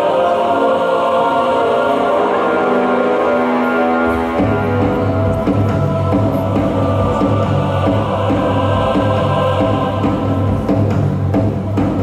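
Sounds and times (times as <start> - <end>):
choir-like voices: 0.0 - 12.0
low drum beat: 4.4 - 12.0.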